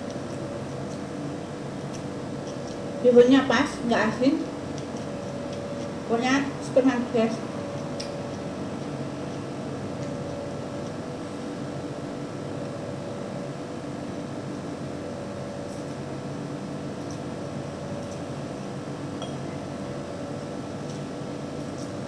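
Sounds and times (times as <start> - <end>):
appliance hum: 0.0 - 22.0
chopsticks clicking against bowl: 7.7 - 11.0.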